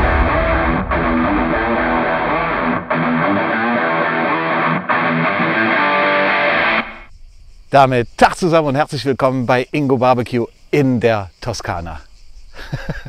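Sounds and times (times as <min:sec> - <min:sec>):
strummed electric guitar music: 0:00.0 - 0:07.0.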